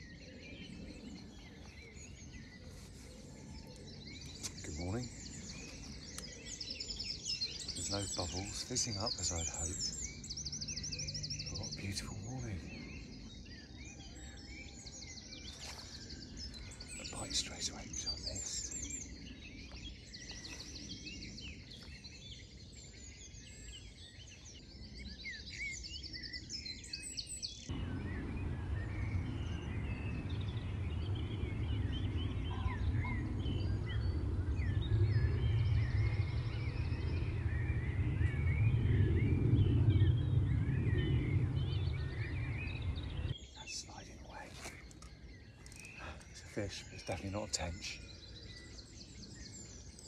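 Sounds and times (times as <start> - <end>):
songbirds singing: 0.0 - 50.0
low rumble: 27.7 - 43.6.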